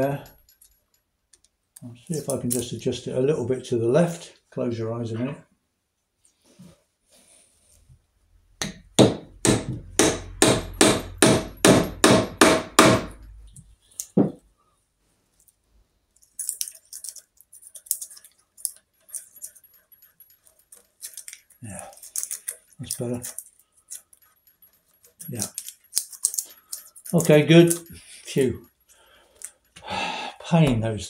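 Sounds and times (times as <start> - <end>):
small hammer tapping metal: 8.6 - 13.2.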